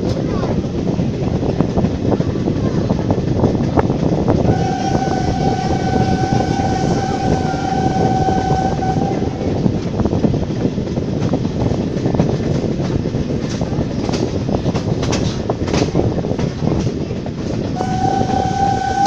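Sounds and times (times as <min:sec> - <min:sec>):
train running noise: 0:00.0 - 0:19.0
steam locomotive whistle: 0:04.5 - 0:09.7, 0:17.8 - 0:19.0
wheels clicking over rail joints: 0:09.4 - 0:19.0.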